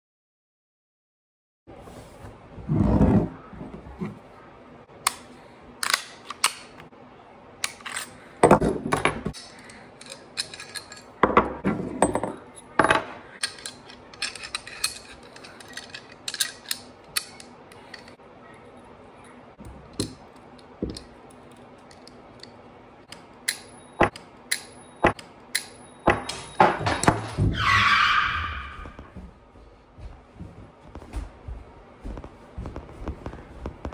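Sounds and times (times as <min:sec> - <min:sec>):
pistol parts clicking and clacking: 0:05.0 - 0:06.8, 0:07.6 - 0:11.4, 0:12.1 - 0:18.2, 0:19.8 - 0:27.2.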